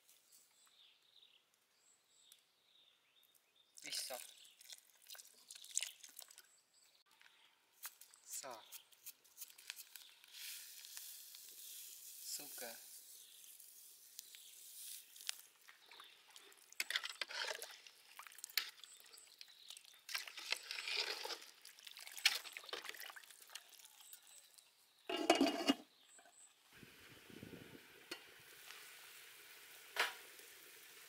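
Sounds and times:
ladle stirring soup in pot: 15.7s - 26.0s
metal lid clattering on pot: 25.1s - 25.8s.

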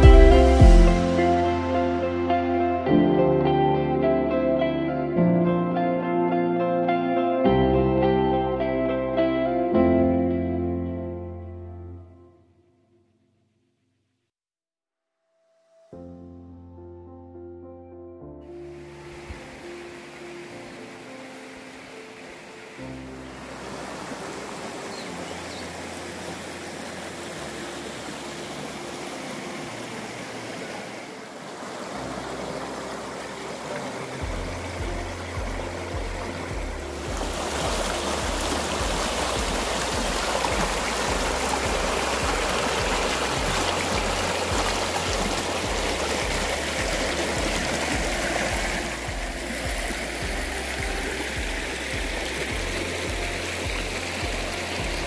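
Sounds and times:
music with pulsing bass line: 0.0s - 3.8s, 34.2s - 55.0s
stream pouring over rocks: 18.7s - 55.0s.

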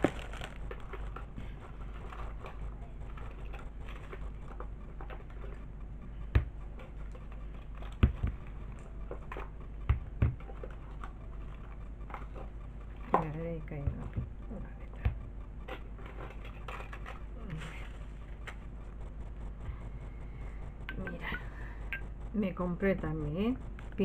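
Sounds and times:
bag rustling: 0.0s - 1.1s.

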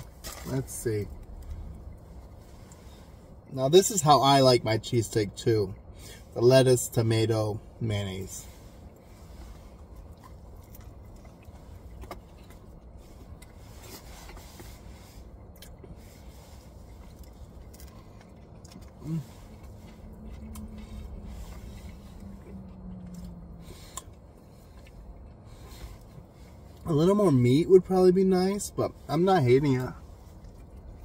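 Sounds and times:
low rumble inside car: 0.0s - 31.0s
man chewing food: 8.1s - 26.9s, 29.8s - 31.0s.

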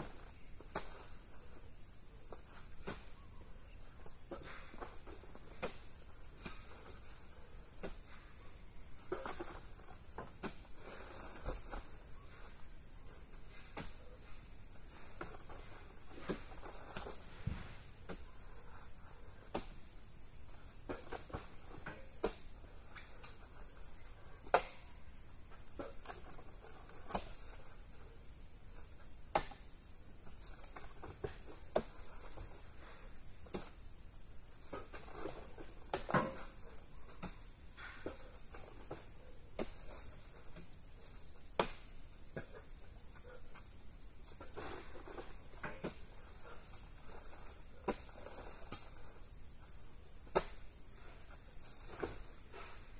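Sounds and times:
sharp knocks and thuds: 14.9s - 18.8s, 41.4s - 42.6s, 50.2s - 50.7s.

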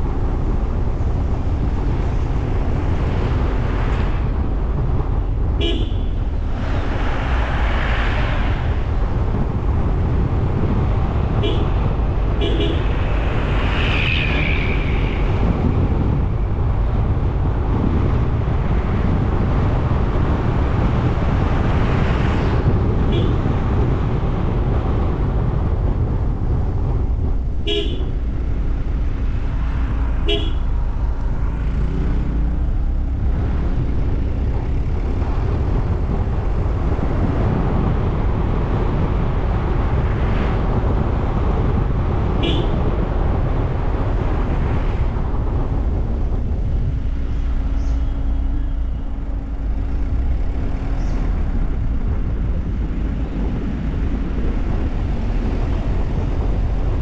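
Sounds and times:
car road and engine noise: 0.0s - 57.0s
car horn toots: 5.6s - 6.2s, 11.4s - 13.0s, 23.1s - 23.4s, 27.6s - 28.2s, 30.2s - 30.7s, 42.4s - 42.8s.

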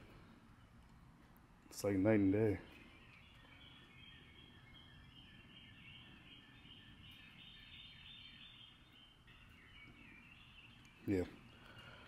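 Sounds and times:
high continuous chirping: 0.0s - 12.0s.

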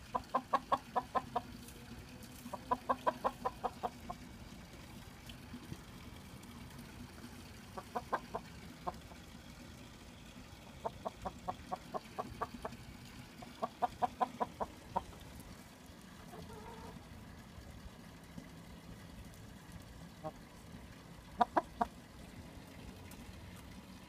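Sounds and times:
chickens clucking: 0.0s - 1.8s, 2.4s - 4.3s, 7.8s - 9.2s, 10.8s - 12.8s, 13.4s - 15.3s, 16.2s - 17.0s, 21.4s - 21.9s
chicken drawn-out call: 16.3s - 17.0s.

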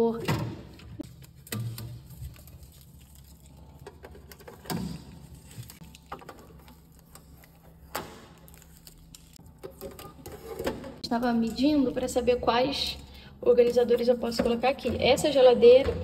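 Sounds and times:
light rustling of tape: 1.0s - 4.6s.

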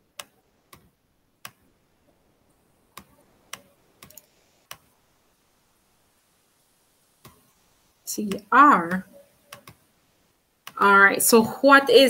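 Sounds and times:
faint sharp clicks: 3.0s - 4.9s.

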